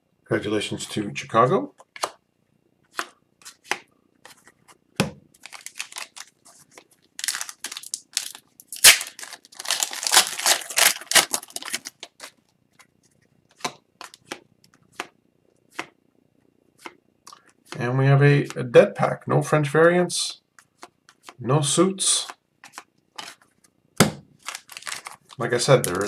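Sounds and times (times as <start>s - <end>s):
trading cards being flipped: 2.9s - 4.7s
plastic wrapper crinkling: 5.4s - 12.8s, 24.4s - 26.0s.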